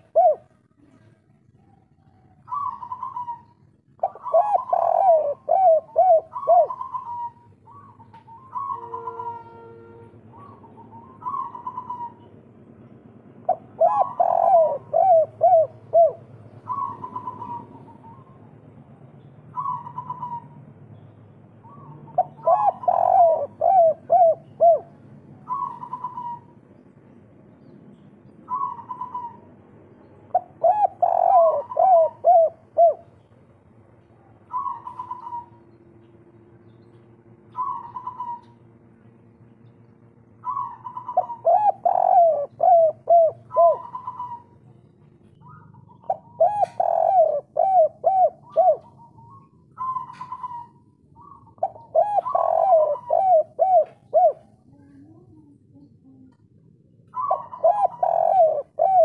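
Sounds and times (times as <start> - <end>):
dove cooing: 0.0 - 12.4, 13.4 - 18.9, 19.5 - 20.7, 21.6 - 26.8, 28.4 - 33.2, 34.4 - 36.1, 37.4 - 39.2, 40.4 - 59.0.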